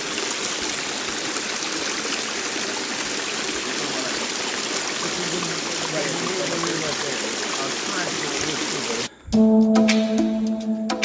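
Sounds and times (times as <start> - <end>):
stream trickling over rocks: 0.0 - 9.1.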